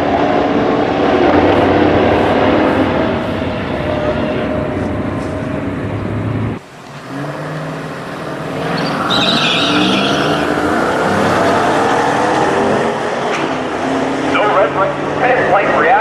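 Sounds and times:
car engine idling and revving: 0:00.0 - 0:16.0
race car passing down track: 0:00.0 - 0:16.0
high-pitched squeal: 0:06.6 - 0:15.8.

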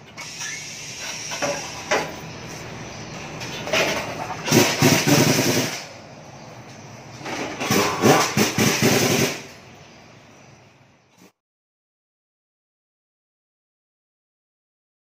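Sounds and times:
metallic clattering and knocking: 0:03.4 - 0:05.9.

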